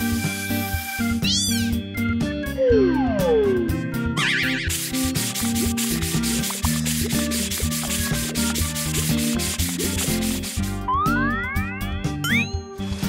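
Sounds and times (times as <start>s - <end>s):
background music: 0.0s - 13.0s
sponge scrubbing: 4.4s - 10.9s.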